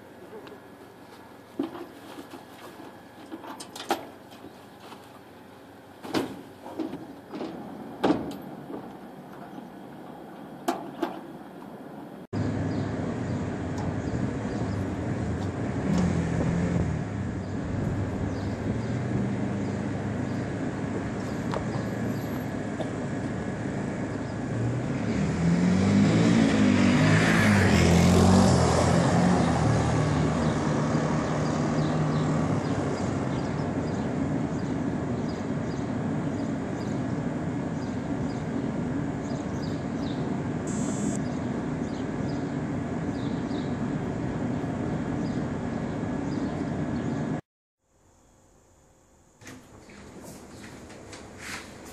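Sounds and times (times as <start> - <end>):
steady background noise: 0.0 - 25.5, 31.3 - 47.4
quad bike engine passing: 12.4 - 37.0, 40.7 - 42.3.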